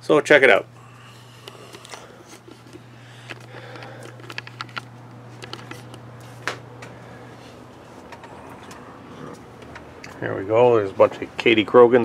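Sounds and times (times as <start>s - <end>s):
low machine hum: 0.0s - 12.0s
camera handling clicks and knocks: 1.7s - 6.6s.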